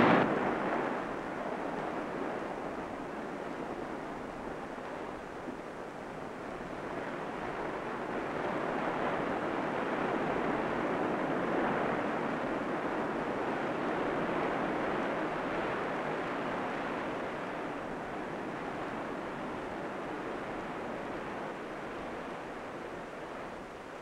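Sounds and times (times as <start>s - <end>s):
surf breaking over rocks: 0.0s - 0.9s.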